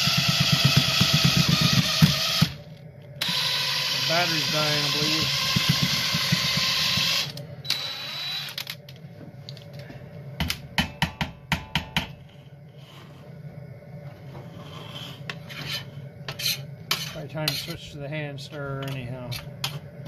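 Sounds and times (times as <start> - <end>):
cordless drill mixing: 0.0 - 2.6, 3.2 - 8.7.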